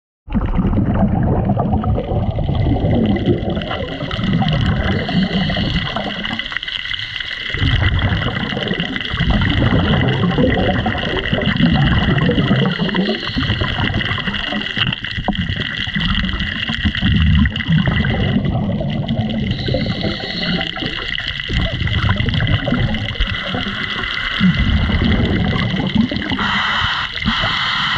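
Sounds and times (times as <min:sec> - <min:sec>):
underwater exhale bubbles: 0:00.3 - 0:27.9
steady high hum: 0:26.4 - 0:27.9.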